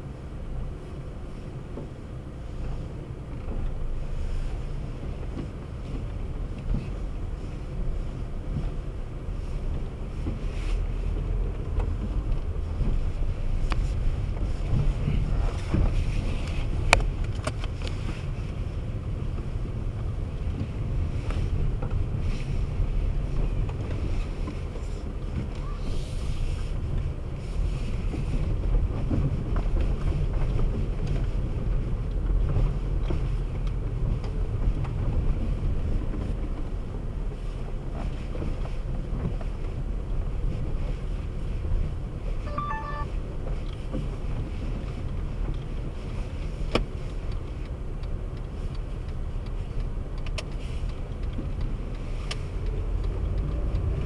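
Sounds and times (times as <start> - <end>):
car driving over rough pavement: 0.1 - 42.4.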